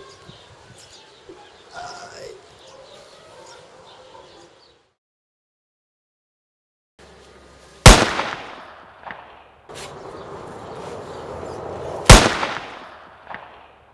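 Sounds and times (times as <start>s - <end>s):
gunshot echo: 7.8s - 9.4s, 12.1s - 13.7s
revolver gunshots: 7.8s - 9.4s, 12.0s - 13.8s.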